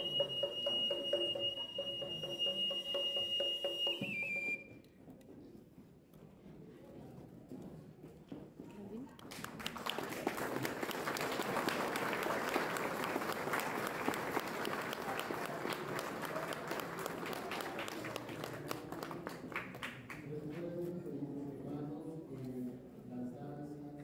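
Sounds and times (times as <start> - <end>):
crowd applauding: 9.3 - 20.2.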